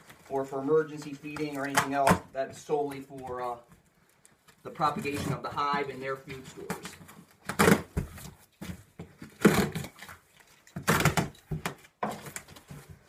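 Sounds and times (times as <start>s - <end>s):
cardboard boxes scraping and rustling: 4.7s - 10.3s.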